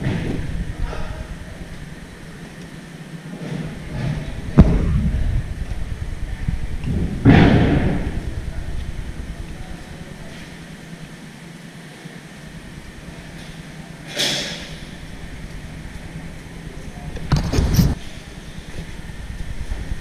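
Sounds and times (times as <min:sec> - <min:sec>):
loud echoing bangs: 0:03.8 - 0:05.6, 0:06.8 - 0:09.4.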